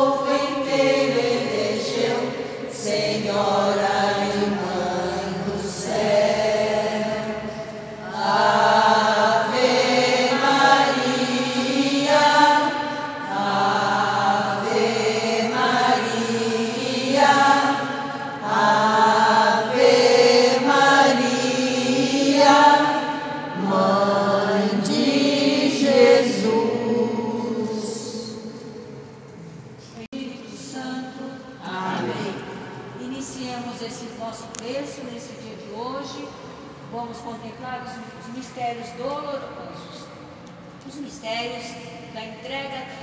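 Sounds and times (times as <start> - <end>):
group singing a hymn: 0.0 - 29.8, 30.8 - 33.8.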